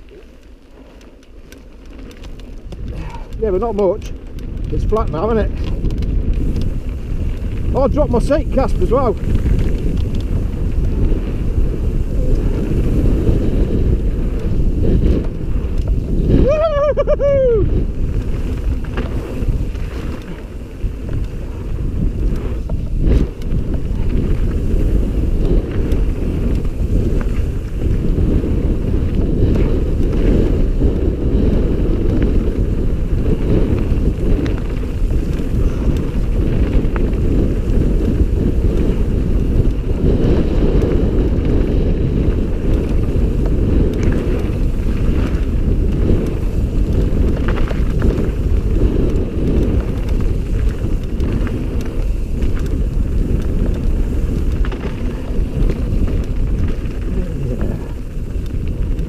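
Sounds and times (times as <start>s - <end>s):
bike rattling on gravel trail: 0.0s - 59.0s
wind buffeting microphone: 0.0s - 59.0s.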